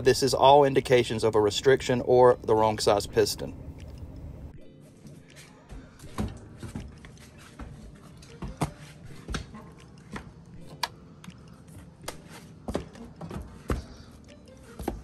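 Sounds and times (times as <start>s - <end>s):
low steady hum: 0.0s - 8.4s
footsteps on wooden ladder: 5.8s - 10.4s, 11.8s - 14.0s.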